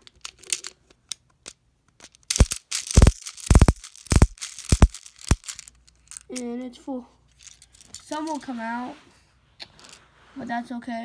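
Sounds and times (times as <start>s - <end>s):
sharp plastic clacks: 0.0s - 6.5s.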